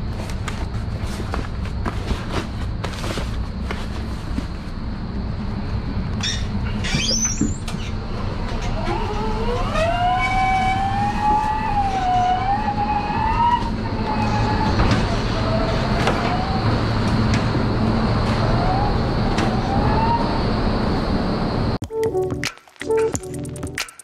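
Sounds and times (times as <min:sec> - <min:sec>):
steady low hum: 0:00.0 - 0:07.0.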